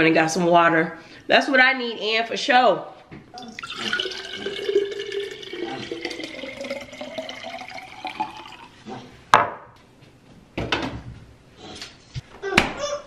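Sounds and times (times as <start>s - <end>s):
water pouring into glass jar: 3.4s - 8.8s.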